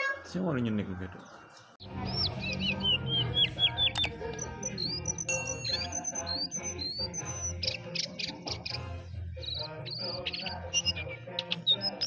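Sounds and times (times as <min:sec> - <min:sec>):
songbird whistling and chirping: 0:01.2 - 0:12.0.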